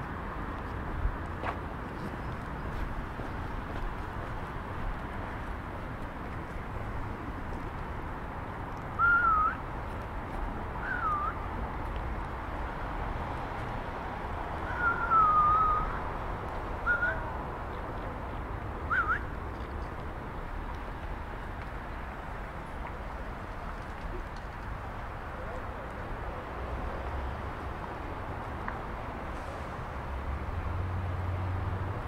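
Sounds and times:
low city hum: 0.0s - 32.0s
whistled notes: 9.0s - 9.6s, 10.8s - 11.4s, 14.7s - 16.0s, 16.8s - 17.3s, 18.9s - 19.3s.

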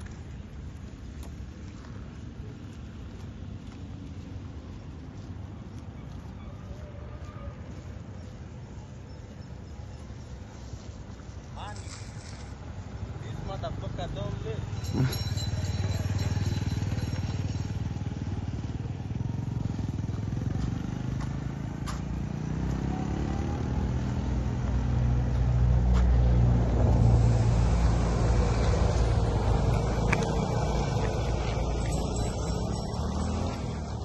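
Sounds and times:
road traffic rumble: 0.0s - 34.0s
motorcycle engine passing: 14.1s - 24.5s, 26.7s - 34.0s.

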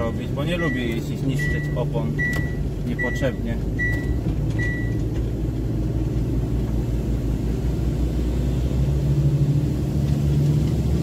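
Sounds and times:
diesel truck engine revving: 0.0s - 11.0s.

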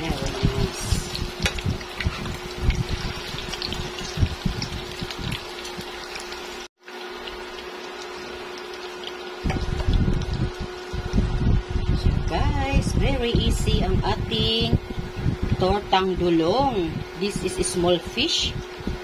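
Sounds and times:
fritters sizzling in oil: 0.0s - 11.8s.

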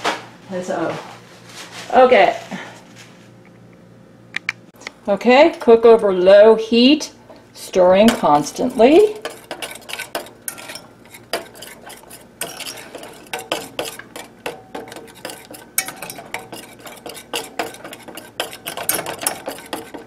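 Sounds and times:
utensil scraping metal saucepan: 7.6s - 20.0s.

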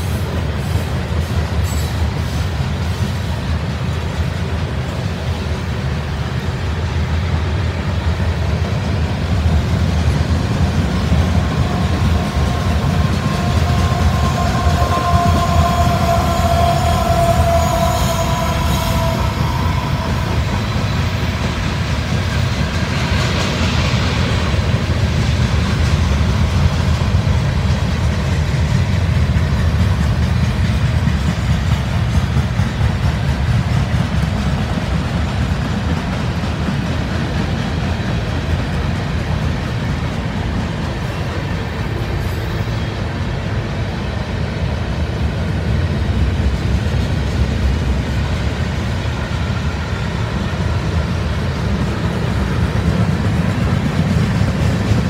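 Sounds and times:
freight train wheels rumbling: 0.0s - 55.0s
high-pitched wheel squeal: 11.8s - 21.0s.

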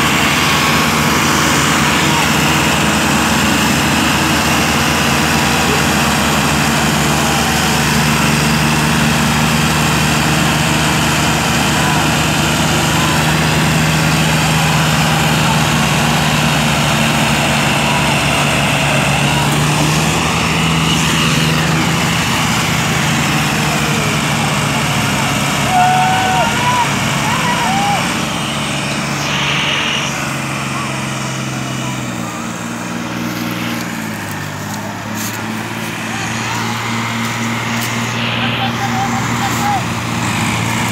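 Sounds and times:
diesel tractor engines under load: 0.0s - 40.9s.

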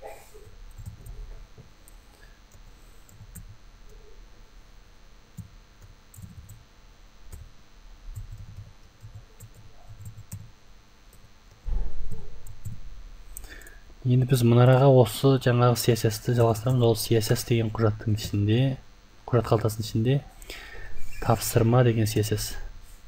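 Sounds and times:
computer keyboard typing: 0.7s - 1.2s, 2.5s - 4.0s, 5.4s - 6.6s, 7.3s - 7.5s, 8.1s - 10.5s, 12.2s - 12.8s
low thud: 11.7s - 13.0s.

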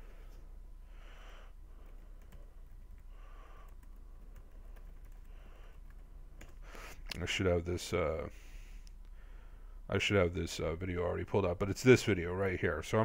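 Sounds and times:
soft breaths: 0.0s - 7.2s, 8.2s - 9.9s
keyboard typing: 1.8s - 6.6s.

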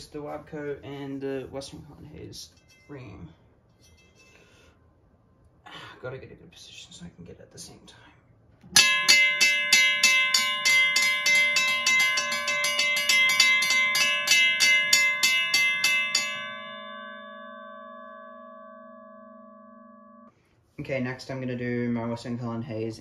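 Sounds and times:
crossing bells ringing: 8.8s - 20.3s.

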